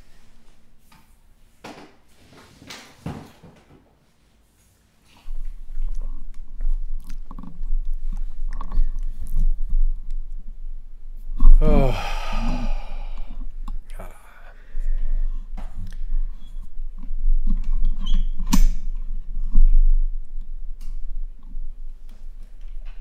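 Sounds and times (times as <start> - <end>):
steady low hum: 5.2 - 23.0
person's short falling vocal sound: 11.6 - 13.2.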